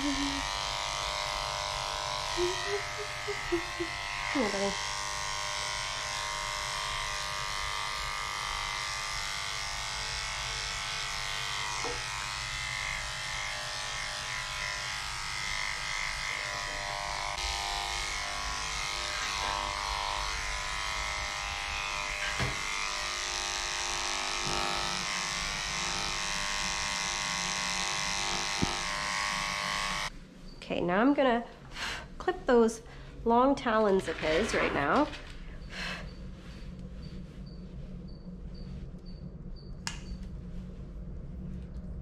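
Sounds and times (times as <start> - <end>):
electric clippers running: 0.0 - 30.1.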